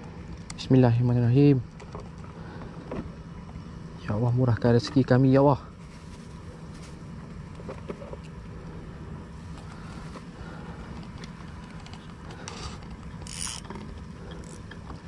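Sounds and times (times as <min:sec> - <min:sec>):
low mechanical rattle: 0:10.3 - 0:15.0
fishing reel line hissing: 0:12.4 - 0:13.8, 0:14.4 - 0:14.6.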